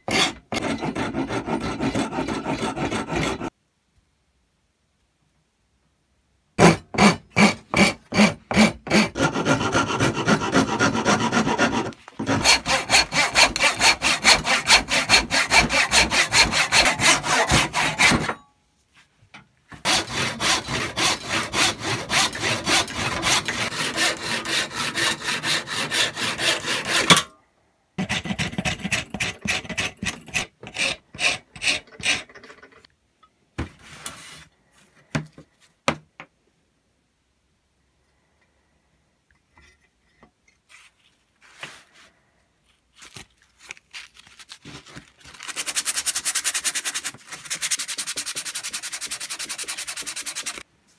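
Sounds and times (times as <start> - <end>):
rasp strokes on wood: 0.1 - 3.5, 6.6 - 18.4, 19.8 - 27.2, 45.5 - 50.6.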